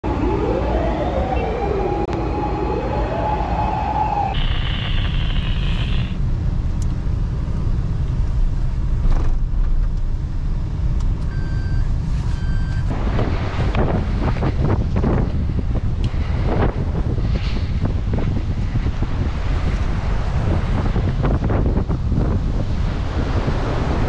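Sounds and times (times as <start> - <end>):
emergency siren wailing: 0.0 - 6.2.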